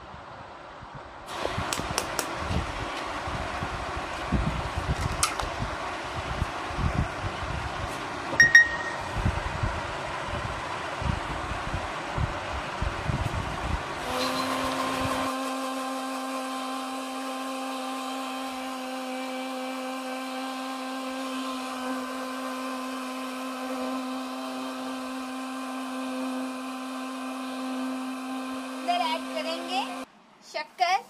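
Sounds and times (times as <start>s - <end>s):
mixer grinder running: 12.9s - 30.1s.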